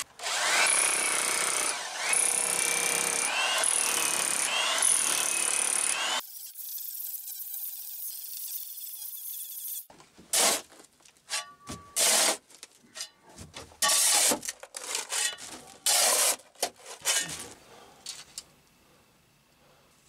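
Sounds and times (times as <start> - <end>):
metal shovel scraping sand: 10.3 - 13.1, 13.8 - 17.6.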